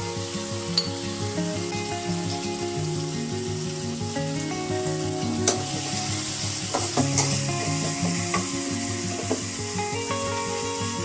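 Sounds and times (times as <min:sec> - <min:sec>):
background music with held notes: 0:00.0 - 0:11.0
spice paste sizzling in a wok: 0:05.7 - 0:10.4.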